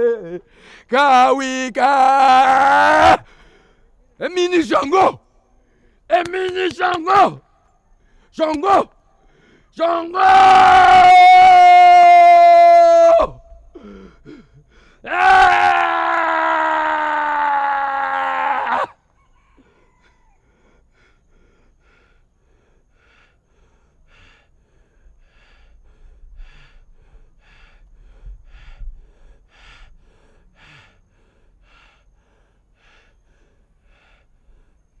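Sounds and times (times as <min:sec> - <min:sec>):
man breathing heavily: 0:00.0 - 0:01.0, 0:03.2 - 0:04.2, 0:05.3 - 0:06.1, 0:07.5 - 0:09.8, 0:13.6 - 0:15.1, 0:19.6 - 0:35.0.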